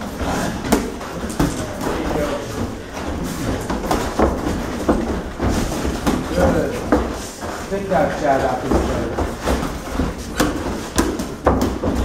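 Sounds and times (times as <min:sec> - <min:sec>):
murmur of voices: 0:00.0 - 0:03.5
boxing gloves thudding: 0:00.1 - 0:07.2, 0:08.0 - 0:12.0.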